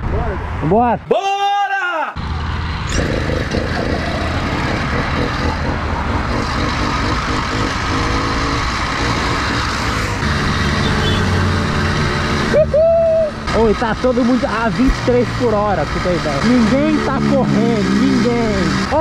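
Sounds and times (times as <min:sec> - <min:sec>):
two-stroke engines running: 0:02.8 - 0:12.5, 0:13.4 - 0:19.0.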